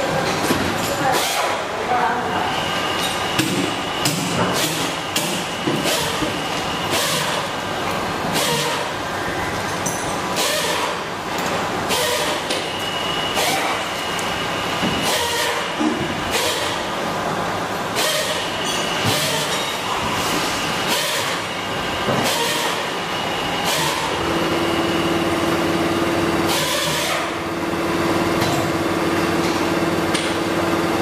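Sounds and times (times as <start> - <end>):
steady noisy background: 0.0 - 31.0
tools knocking and clanking: 28.4 - 28.8.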